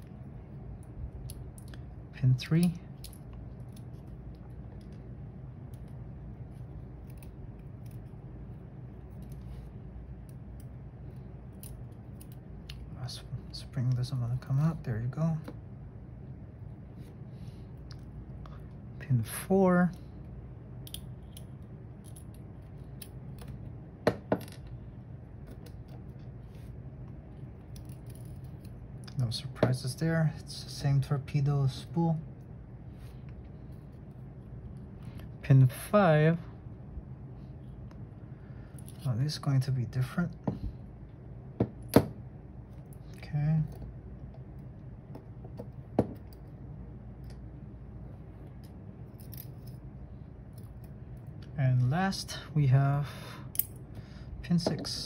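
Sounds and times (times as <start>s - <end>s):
lock pins clicking and tapping: 20.8s - 22.4s.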